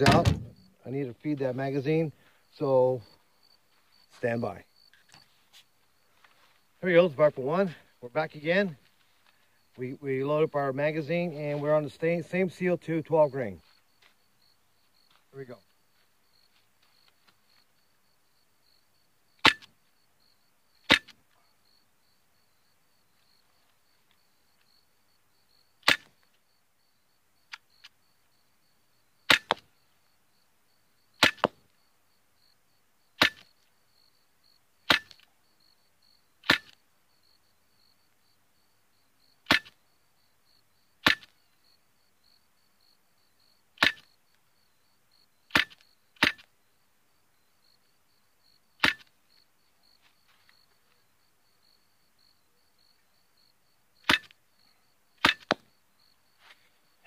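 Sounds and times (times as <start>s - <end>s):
air pistol shots cracking: 0.0s - 0.7s, 41.0s - 41.3s, 48.8s - 49.1s, 54.0s - 54.3s, 55.2s - 55.6s.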